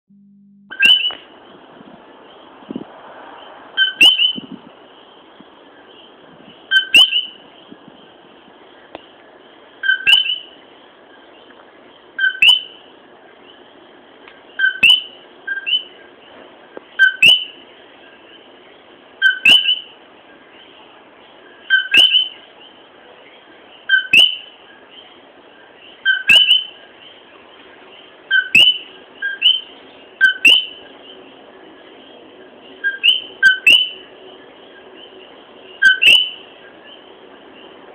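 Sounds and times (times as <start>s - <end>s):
frog calling two-note call: 0.7s - 1.2s, 3.8s - 4.4s, 6.7s - 7.4s, 9.8s - 10.5s, 12.2s - 12.8s, 14.6s - 15.9s, 19.2s - 19.9s, 26.0s - 26.8s, 28.3s - 30.8s, 35.8s - 36.4s
steady background hiss: 0.7s - 37.9s.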